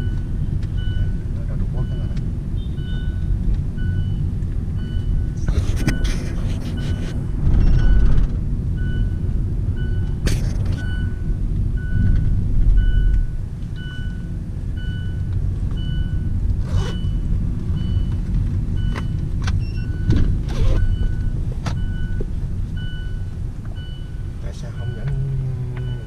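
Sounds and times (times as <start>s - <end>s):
short electronic beeps: 0.0s - 8.2s, 12.8s - 18.2s, 22.8s - 26.0s
car road and engine rumble: 0.0s - 26.0s.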